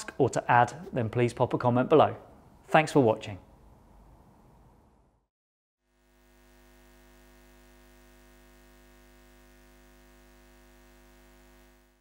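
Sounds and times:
faint hum of held tones: 0:05.9 - 0:12.0.

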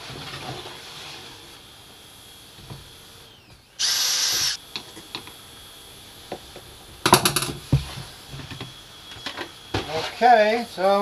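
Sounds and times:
cordless drill boring into wood: 0:02.9 - 0:04.6.

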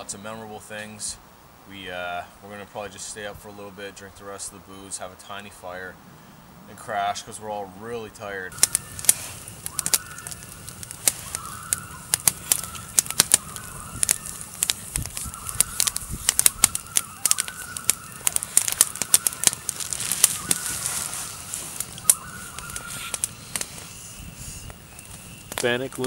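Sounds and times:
campfire crackling and popping: 0:08.1 - 0:26.0
loons wailing: 0:08.5 - 0:26.0.

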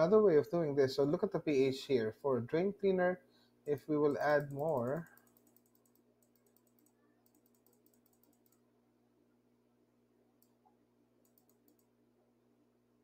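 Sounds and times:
soft sharp clicks: 0:10.4 - 0:11.9.

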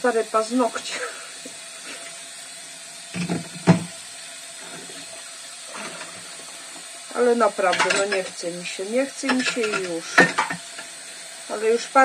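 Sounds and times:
tap running into sink: 0:03.1 - 0:04.0, 0:09.2 - 0:11.0
dishes clunking: 0:03.2 - 0:03.9, 0:07.7 - 0:08.3, 0:09.3 - 0:10.8.

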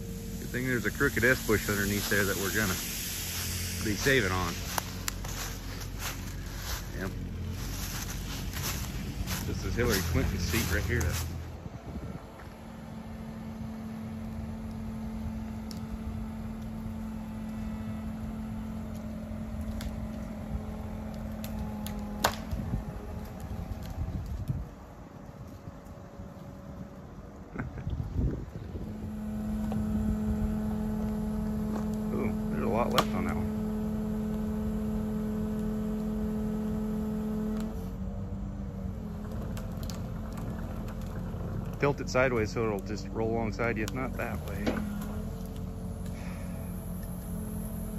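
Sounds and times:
excavator engine rumbling: 0:00.0 - 0:47.9
sharp crack: 0:21.4 - 0:22.7, 0:32.6 - 0:33.4.

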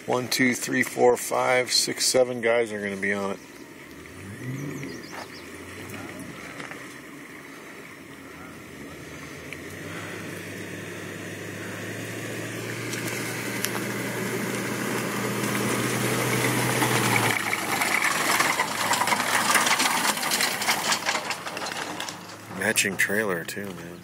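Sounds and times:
vehicle engine running: 0:00.0 - 0:24.0
water splashing and streaming: 0:02.6 - 0:21.0
trailer rattling over concrete: 0:11.4 - 0:24.0.

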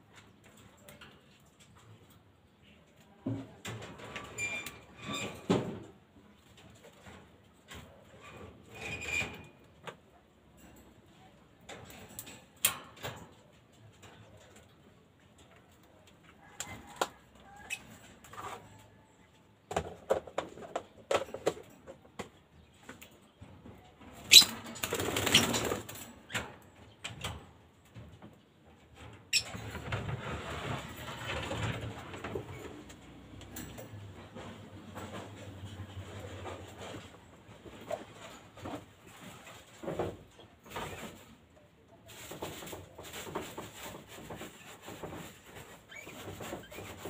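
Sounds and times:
birds' wings flapping: 0:24.4 - 0:26.0
knocks and clatter: 0:24.6 - 0:41.3.

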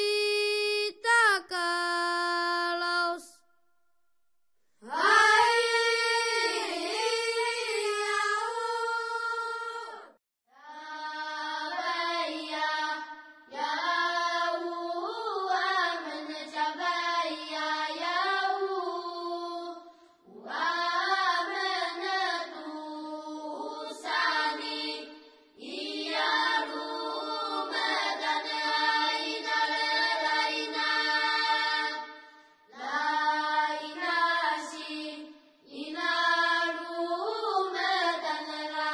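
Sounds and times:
person singing long phrases: 0:00.0 - 0:03.4.

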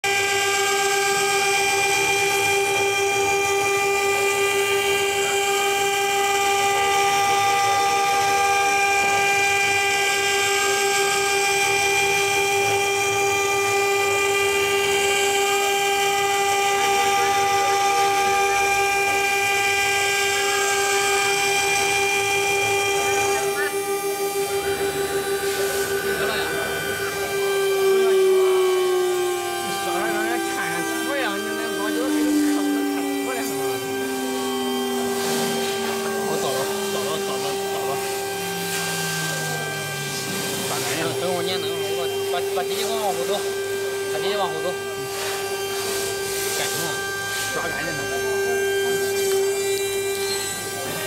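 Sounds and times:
cnc router spindle whine: 0:00.0 - 0:51.0
metal cutting hiss: 0:17.2 - 0:51.0.

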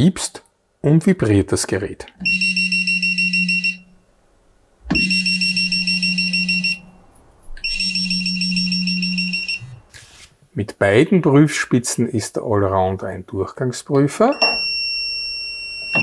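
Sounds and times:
low vibration buzz: 0:04.9 - 0:10.0
rapidly pulsing high beep: 0:07.6 - 0:09.8.

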